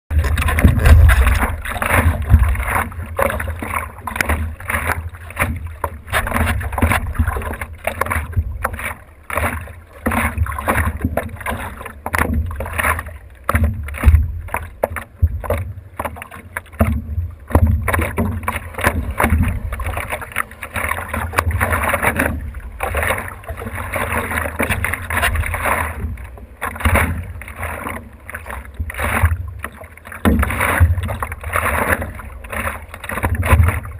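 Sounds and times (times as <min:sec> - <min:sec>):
low rumble: 0:00.1 - 0:03.1
water splashing against paddleboard: 0:00.1 - 0:33.9.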